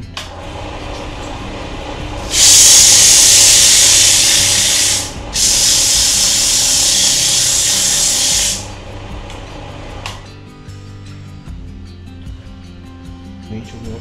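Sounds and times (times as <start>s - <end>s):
sandpaper hissing on spinning wood: 2.2s - 8.9s.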